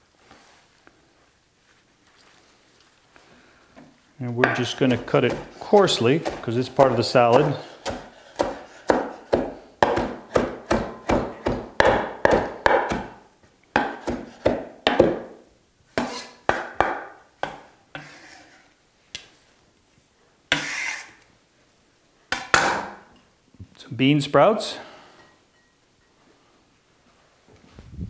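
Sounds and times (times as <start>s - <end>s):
knife chopping on wooden board: 4.4s - 13.2s, 13.8s - 15.3s, 16.0s - 18.1s.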